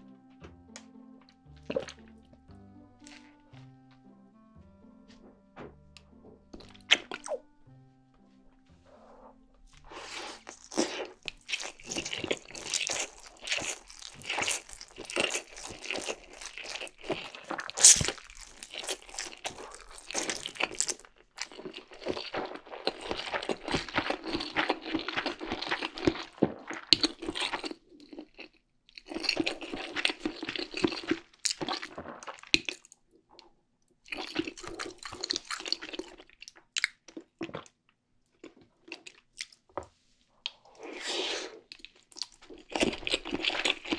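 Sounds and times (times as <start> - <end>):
person slurping and chewing noodles: 1.6 - 2.3, 6.6 - 7.4, 8.9 - 32.9, 34.1 - 37.8, 40.5 - 43.9.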